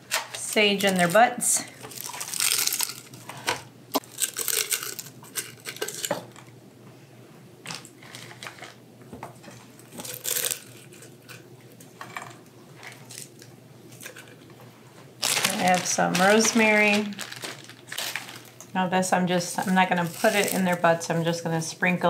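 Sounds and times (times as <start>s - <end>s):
dried herbs crinkling and rustling: 0.4s - 3.4s, 4.0s - 6.1s, 15.2s - 18.7s, 19.5s - 21.2s.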